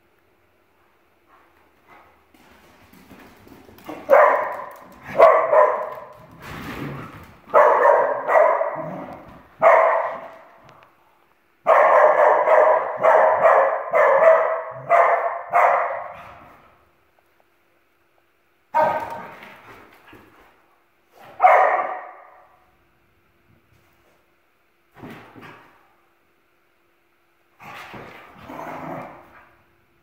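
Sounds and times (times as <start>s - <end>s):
dogs barking: 4.0s - 6.1s, 7.5s - 10.5s, 11.7s - 16.4s, 21.4s - 22.4s.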